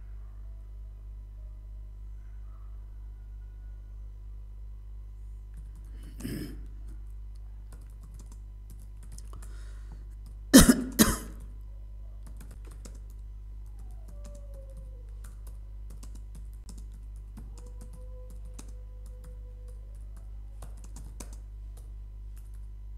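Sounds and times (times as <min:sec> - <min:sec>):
steady low hum: 0:00.0 - 0:22.9
loud coughs: 0:10.5 - 0:11.4.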